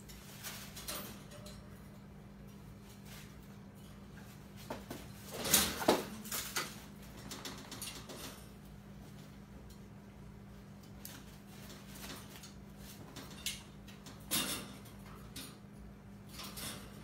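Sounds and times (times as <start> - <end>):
knocks and rattles of wire cage: 0.0 - 9.9, 10.6 - 17.0
raccoons scuffling in a cage: 10.5 - 17.0.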